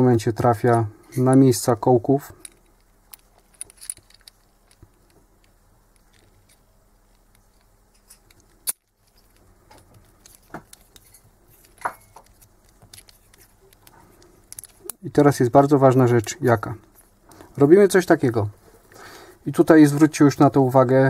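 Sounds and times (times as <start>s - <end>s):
metallic clicks and clinks: 2.4s - 15.0s.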